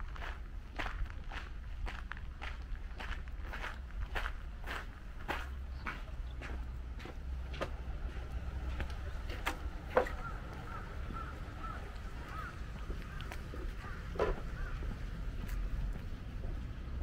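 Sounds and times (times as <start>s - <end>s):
footsteps on a path: 0.0s - 17.0s
birds chirping: 5.1s - 16.2s.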